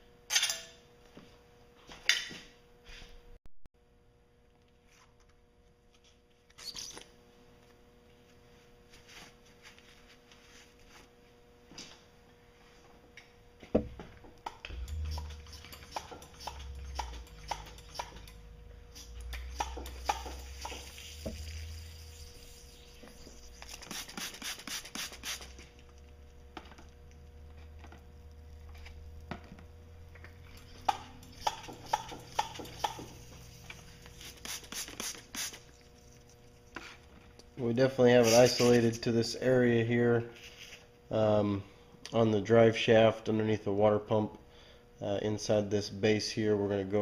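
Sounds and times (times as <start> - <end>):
spray bottle clicking and spraying: 23.6 - 25.6, 31.4 - 35.6.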